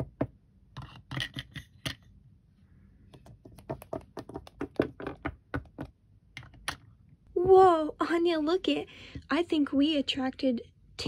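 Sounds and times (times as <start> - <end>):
plastic toys tapping on hard surface: 3.2 - 6.8.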